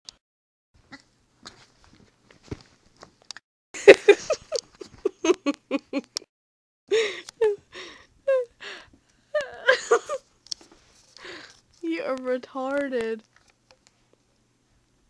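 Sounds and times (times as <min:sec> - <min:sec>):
woman laughing: 0:03.8 - 0:06.3, 0:06.9 - 0:08.6, 0:09.3 - 0:10.2.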